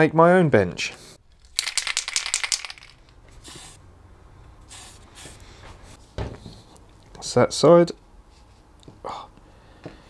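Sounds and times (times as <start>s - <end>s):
aerosol can ball rattling: 1.3s - 3.7s
spray can hissing: 1.6s - 3.8s.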